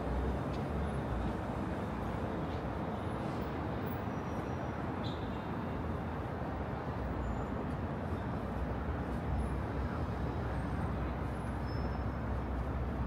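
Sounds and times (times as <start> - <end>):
city traffic rumble: 0.0 - 13.0.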